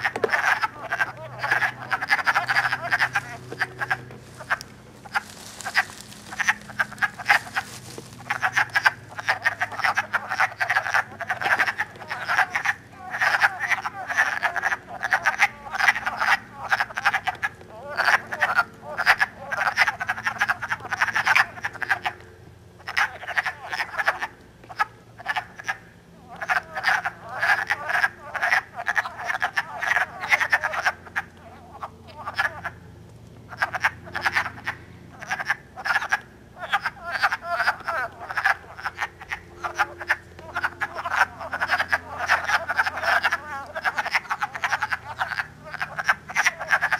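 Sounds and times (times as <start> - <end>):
chorus of wood frogs calling: 0.0 - 46.9.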